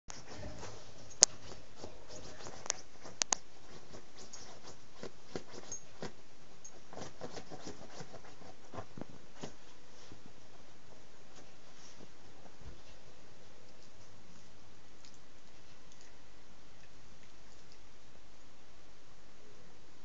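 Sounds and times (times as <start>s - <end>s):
dog scratching pillow fabric: 0.1s - 10.2s.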